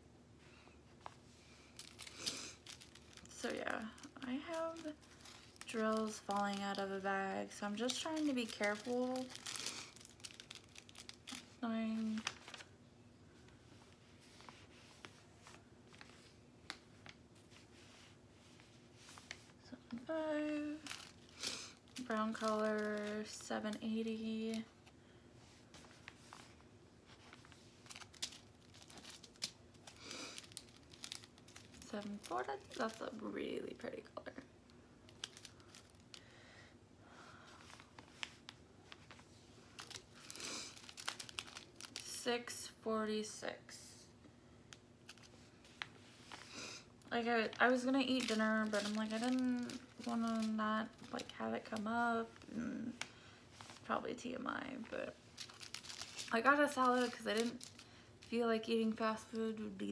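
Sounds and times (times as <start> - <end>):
plastic bags ticking and rustling: 1.8 - 12.6, 19.9 - 24.6, 27.8 - 33.2, 35.1 - 36.2, 39.8 - 42.1, 47.4 - 52.4, 55.4 - 58.4.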